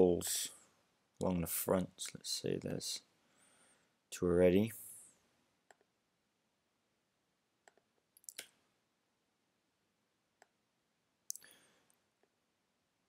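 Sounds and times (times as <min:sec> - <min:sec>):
computer mouse clicks: 0:05.7 - 0:05.9, 0:07.6 - 0:08.5.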